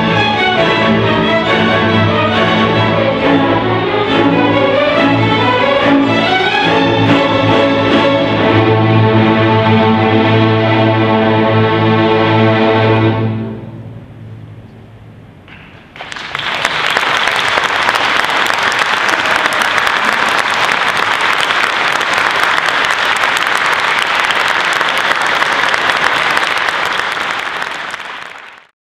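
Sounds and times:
audience applause: 0:15.9 - 0:28.7.

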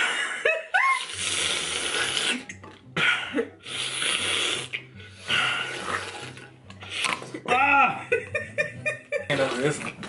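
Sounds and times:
slurping gurgling through straws: 0:00.8 - 0:02.7, 0:03.6 - 0:07.6, 0:09.3 - 0:10.0.

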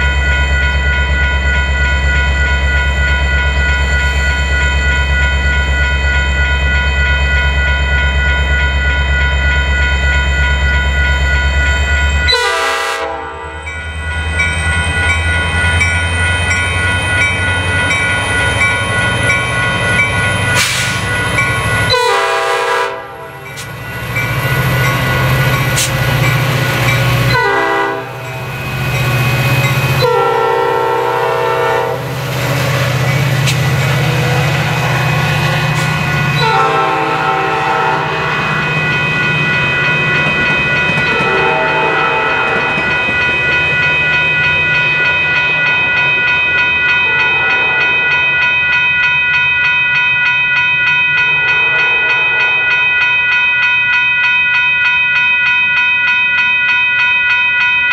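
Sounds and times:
diesel locomotive engine working: 0:00.0 - 0:57.9
grade-crossing bell ringing: 0:00.0 - 0:57.9
train air horn blasts: 0:12.3 - 0:13.6, 0:21.9 - 0:23.4, 0:27.3 - 0:28.2, 0:30.0 - 0:32.1, 0:36.4 - 0:38.6, 0:41.2 - 0:42.8.

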